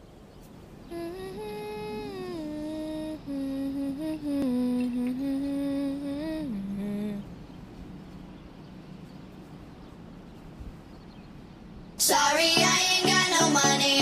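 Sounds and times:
faint hiss: 0:00.0 - 0:08.3
person humming a slow tune: 0:00.8 - 0:07.3.

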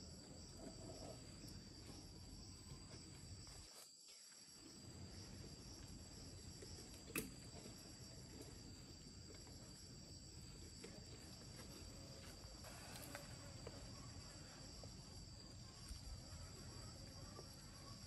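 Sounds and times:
crickets trilling: 0:00.0 - 0:18.0.

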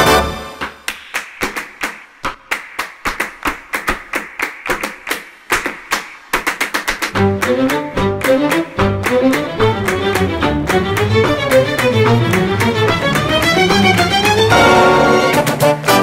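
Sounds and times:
group clapping in rhythm: 0:00.0 - 0:16.0.

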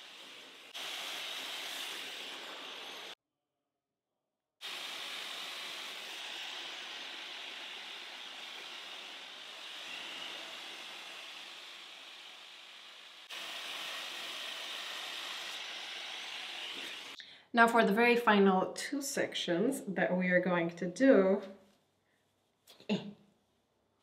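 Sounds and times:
hair dryer blowing air: 0:00.0 - 0:03.2, 0:04.6 - 0:17.2.

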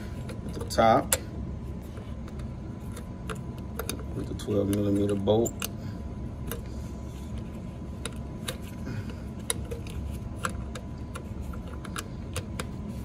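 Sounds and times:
low background hum: 0:00.0 - 0:13.0.

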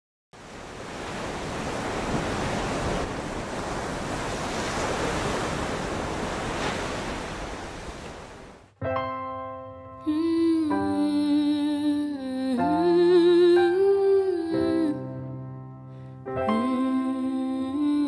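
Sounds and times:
ocean surf rushing: 0:00.4 - 0:08.8.

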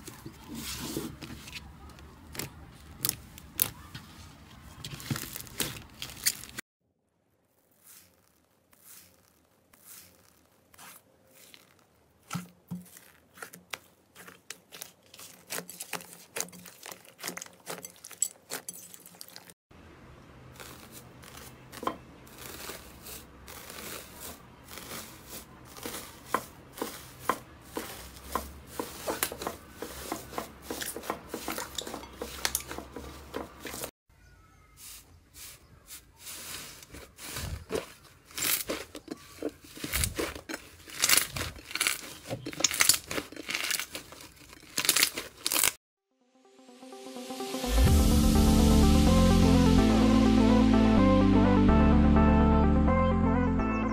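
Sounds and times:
slime crackling: 0:07.5 - 0:19.6, 0:20.5 - 0:31.6, 0:35.4 - 0:45.8.

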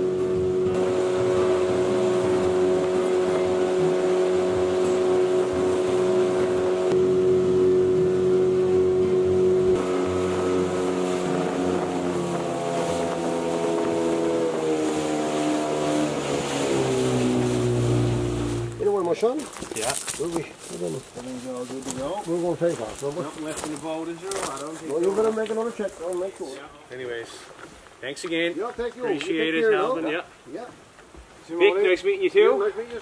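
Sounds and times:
outboard motor running: 0:00.0 - 0:19.2.

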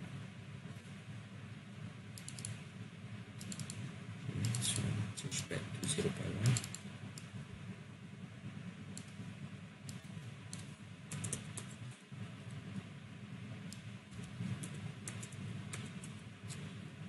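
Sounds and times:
steady low hum: 0:00.0 - 0:17.0
computer keyboard typing: 0:02.2 - 0:02.6, 0:03.4 - 0:03.8, 0:04.4 - 0:04.9, 0:05.8 - 0:07.3, 0:09.9 - 0:11.9, 0:13.7 - 0:16.7.

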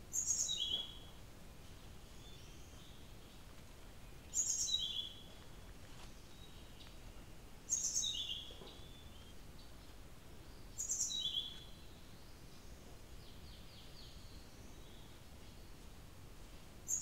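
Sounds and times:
bird singing: 0:00.1 - 0:01.2, 0:02.0 - 0:03.4, 0:04.0 - 0:05.4, 0:06.2 - 0:15.7.

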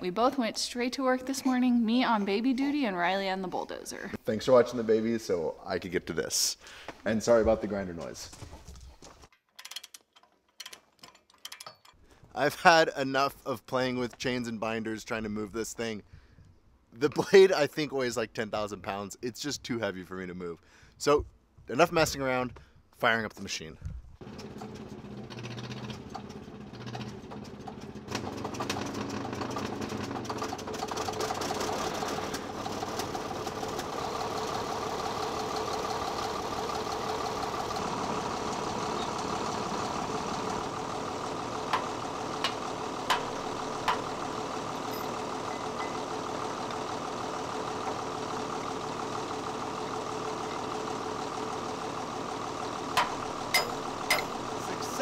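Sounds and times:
diesel engine starting and running: 0:24.2 - 0:55.0
sharp metallic clicks: 0:41.7 - 0:44.2, 0:53.0 - 0:54.6.

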